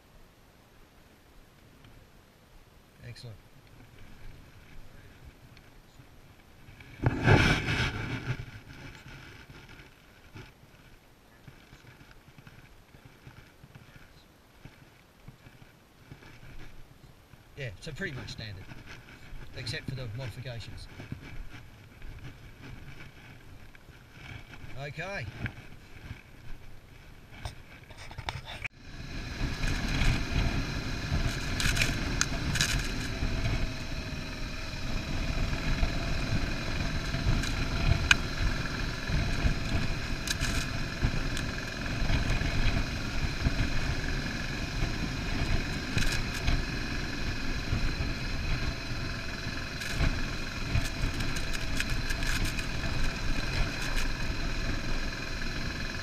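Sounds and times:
motorcycle engine running: 0:03.0 - 0:27.9, 0:28.6 - 0:56.0
track noise: 0:17.3 - 0:56.0.

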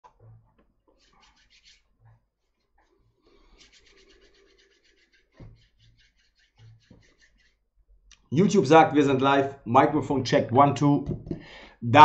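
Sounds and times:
palms rubbing together: 0:00.9 - 0:07.6.

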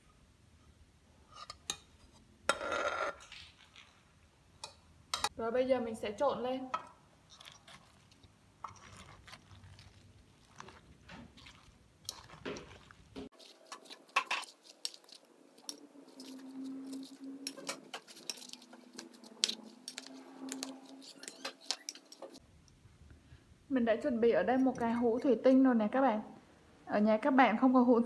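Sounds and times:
ladle clinking and scraping metal bowl: 0:06.8 - 0:22.4.

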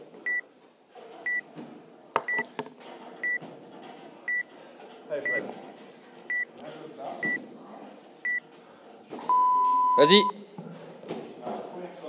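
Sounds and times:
timer short high beeps: 0:09.3 - 0:10.3.

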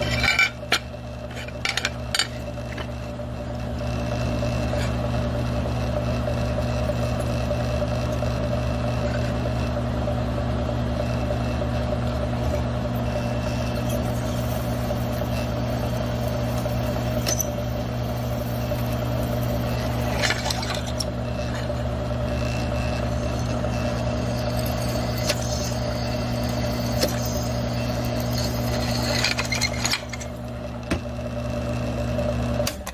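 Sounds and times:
low motor hum: 0:00.0 - 0:32.9
milling machine drilling aluminum: 0:11.0 - 0:30.8.

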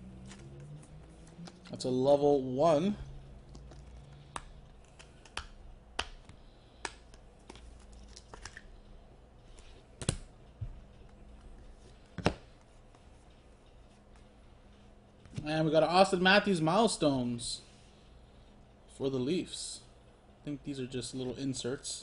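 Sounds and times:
cards clicking and snapping: 0:03.5 - 0:08.6.

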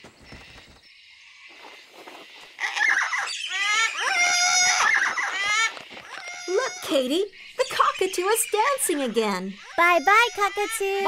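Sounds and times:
cockatoos squawking: 0:02.5 - 0:11.0.

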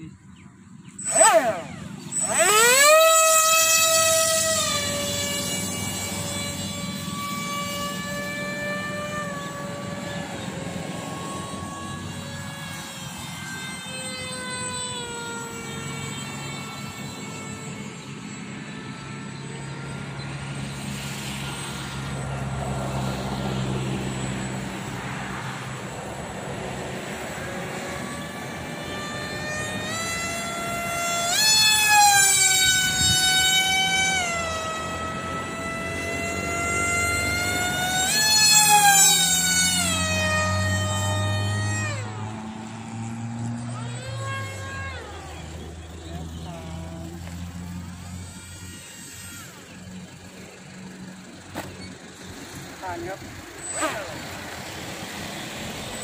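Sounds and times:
model plane motor whining: 0:00.0 - 0:56.0.

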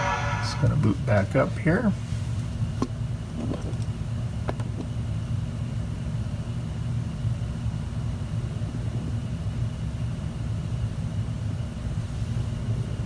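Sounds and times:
low hum: 0:00.0 - 0:02.7.

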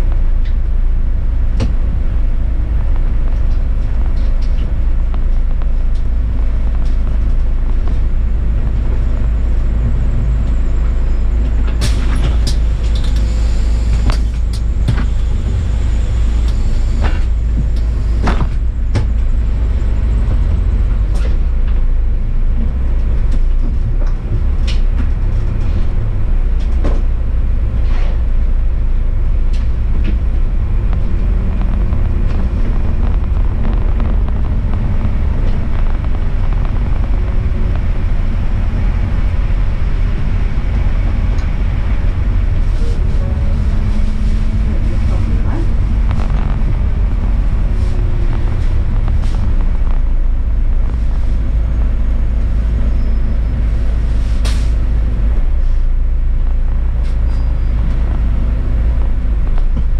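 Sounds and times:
bus engine and road rumble: 0:00.0 - 0:59.9
sharp clicks and knocks: 0:29.5 - 0:41.6.

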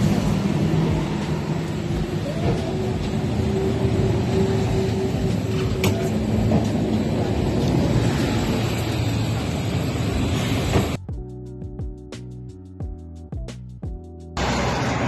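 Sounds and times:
street noise: 0:00.0 - 0:11.0, 0:14.4 - 0:15.0
tram machine hum: 0:00.0 - 0:11.0, 0:14.4 - 0:15.0.

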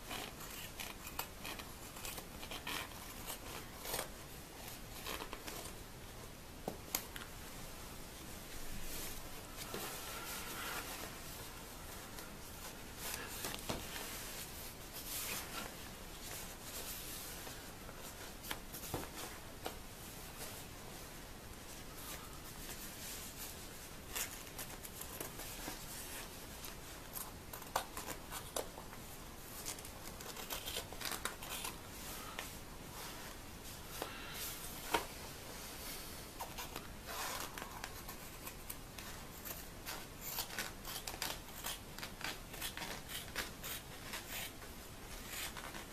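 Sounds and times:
nylon fabric rustling: 0:08.1 - 0:27.0.

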